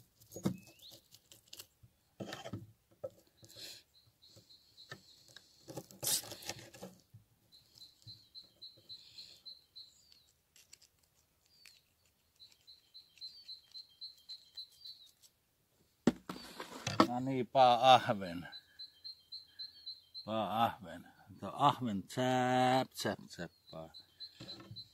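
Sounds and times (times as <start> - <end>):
small bird chirping: 0.2 - 1.7, 3.1 - 6.8, 7.4 - 15.4, 16.3 - 21.5, 23.4 - 24.9
knife scraping fish scales: 5.7 - 6.8.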